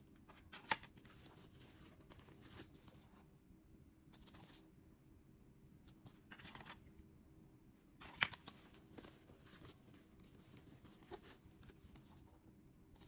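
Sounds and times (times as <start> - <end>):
cardboard sleeves rustling: 0.3 - 3.2, 8.0 - 13.0.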